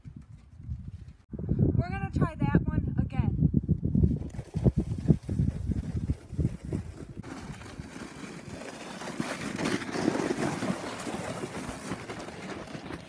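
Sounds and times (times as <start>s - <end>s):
wind on microphone: 0.0s - 7.9s
scraping over crusty snow: 4.5s - 13.0s.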